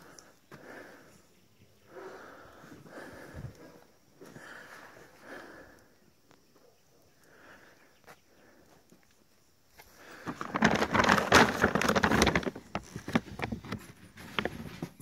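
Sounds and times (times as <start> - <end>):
kibble sack rustling and crackling: 9.8 - 15.0.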